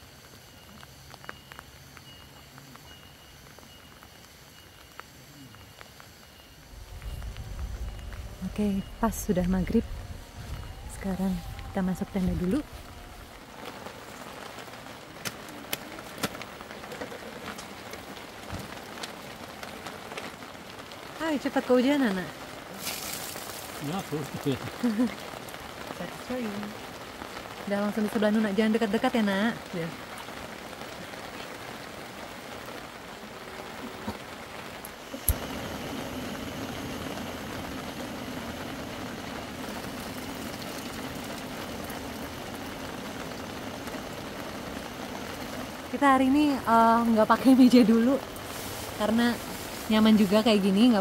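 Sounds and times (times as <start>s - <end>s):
steady rain: 0.0s - 51.0s
gas burner roaring: 6.4s - 19.1s, 33.4s - 50.4s.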